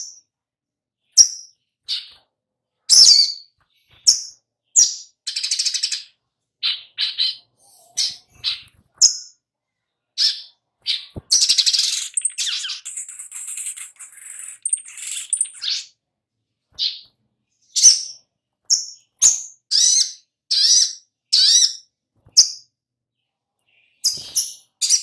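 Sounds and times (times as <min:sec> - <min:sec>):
bird chips and twitters: 0:02.9 - 0:09.4, 0:10.2 - 0:16.0, 0:17.7 - 0:22.7, 0:23.7 - 0:25.0.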